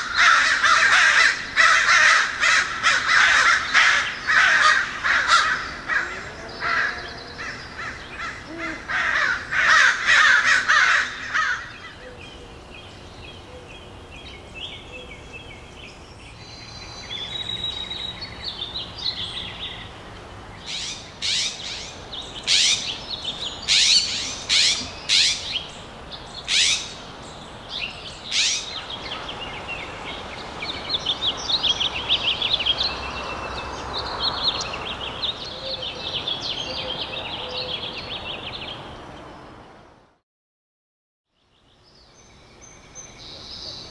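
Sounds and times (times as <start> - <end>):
harsh bird calls: 0.0 - 38.9
birds chirping and twittering: 0.0 - 39.9, 41.3 - 43.9
sharp high bird calls: 20.6 - 25.7, 26.4 - 27.0, 28.2 - 29.3.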